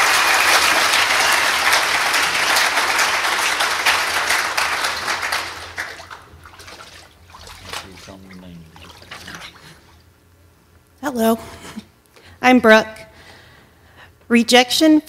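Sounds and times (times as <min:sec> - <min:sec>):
congregation applauding: 0:00.0 - 0:09.8.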